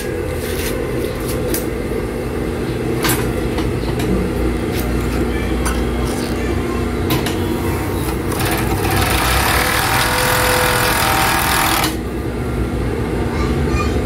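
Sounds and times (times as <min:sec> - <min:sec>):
overlock sewing machine humming: 0:08.1 - 0:12.1.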